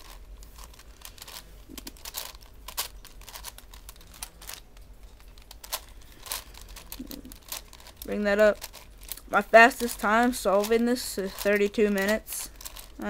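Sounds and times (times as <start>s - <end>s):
puzzle cube layers clicking: 0.0s - 13.0s.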